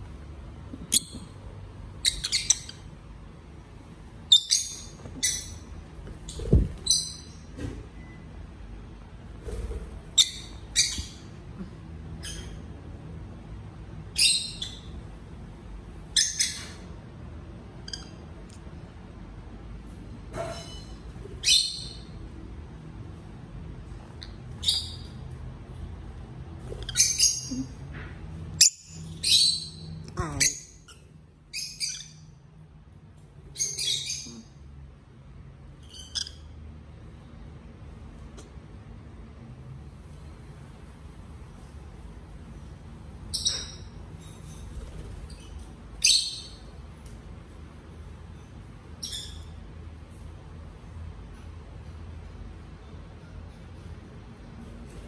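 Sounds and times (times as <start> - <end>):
low room hum: 0.0 - 55.0
lovebirds chirping: 0.7 - 3.0, 4.2 - 8.1, 28.6 - 32.4, 44.8 - 46.7.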